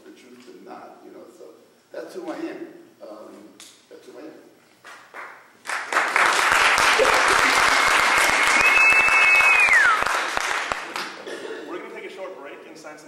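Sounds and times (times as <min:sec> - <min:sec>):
audience applauding: 0:05.0 - 0:11.2
long whistle sliding down: 0:07.8 - 0:10.1.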